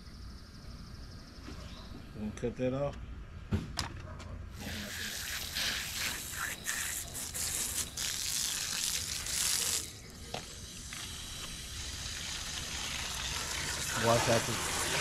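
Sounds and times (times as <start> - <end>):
hose nozzle spraying water: 4.6 - 15.0.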